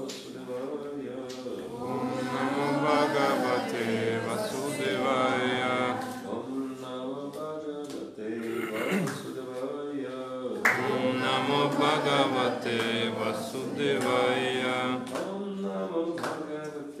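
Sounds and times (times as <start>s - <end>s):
man chanting into a microphone: 4.7s - 17.0s.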